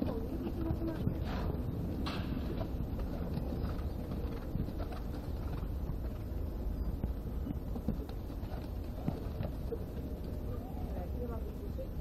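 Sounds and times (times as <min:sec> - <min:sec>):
hoofbeats on sand: 0:01.2 - 0:10.6.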